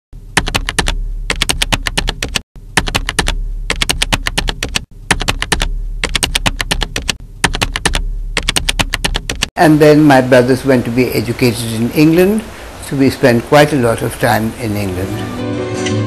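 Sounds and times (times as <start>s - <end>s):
low steady hum: 0.2s - 1.4s, 2.6s - 4.4s, 5.0s - 15.3s
typewriter keys striking: 0.4s - 9.5s.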